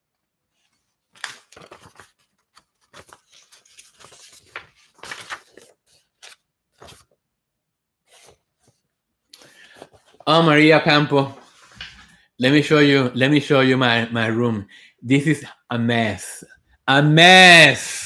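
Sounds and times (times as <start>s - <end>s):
paper rustling and crinkling: 0.5s - 7.2s, 8.1s - 10.3s.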